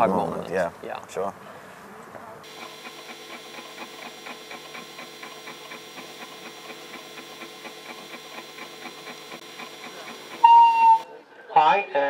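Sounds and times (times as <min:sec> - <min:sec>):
constant hum: 0:02.4 - 0:11.0
fast mechanical ticking: 0:02.4 - 0:11.0.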